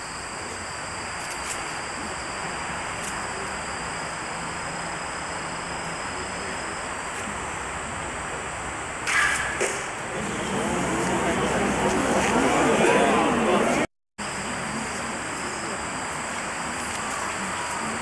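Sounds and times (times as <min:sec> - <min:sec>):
arrow striking target: 0:09.0 - 0:10.0
crowd noise: 0:10.0 - 0:18.0.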